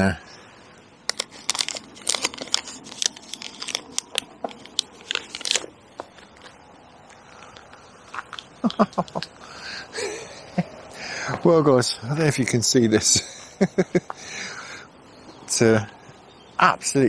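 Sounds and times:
footsteps on gravel: 5.9s - 9.2s.

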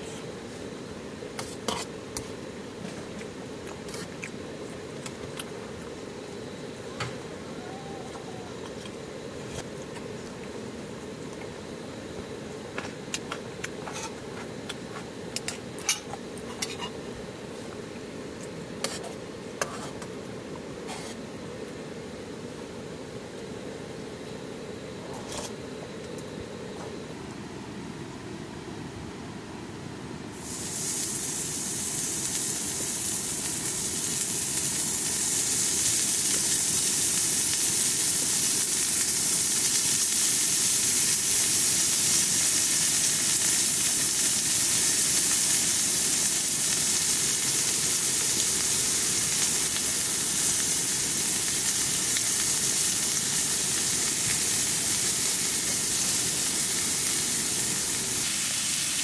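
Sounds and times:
meat sizzling in a pan: 30.3s - 59.0s.

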